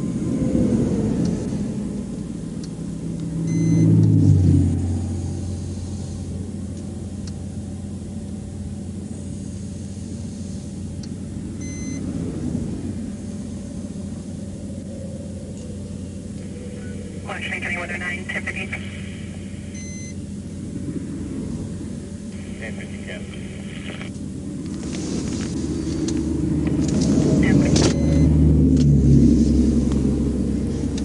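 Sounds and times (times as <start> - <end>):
engine idle hum: 0.0 - 31.0
truck passing: 0.0 - 31.0
faint short beep: 3.5 - 3.9, 11.6 - 12.0, 19.7 - 20.2, 27.7 - 28.3.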